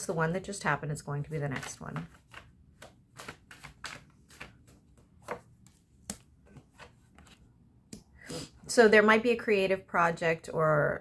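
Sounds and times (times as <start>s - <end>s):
cards being shuffled: 1.3s - 7.5s.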